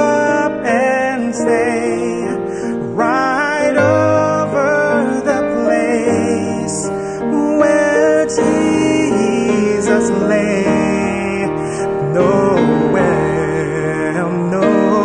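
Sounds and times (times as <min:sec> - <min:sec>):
grand piano playing carol: 0:00.0 - 0:15.0.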